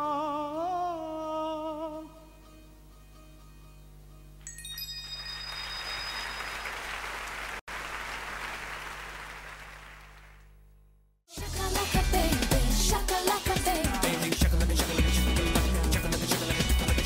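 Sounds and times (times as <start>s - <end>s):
high ringing tones: 4.4s - 6.9s
audience applauding: 5.2s - 10.5s.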